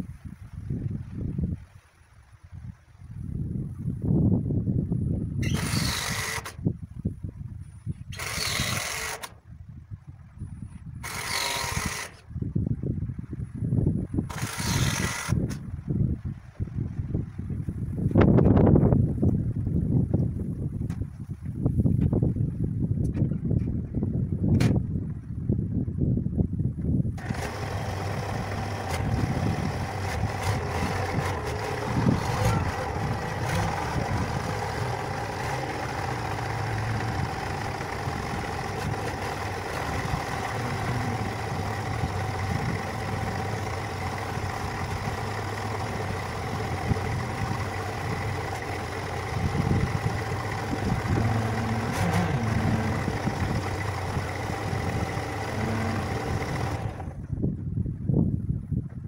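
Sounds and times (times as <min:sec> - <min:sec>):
loader engine running: 0:05.4 - 0:06.6, 0:08.1 - 0:09.4, 0:11.0 - 0:12.3, 0:14.2 - 0:15.6, 0:27.2 - 0:57.4.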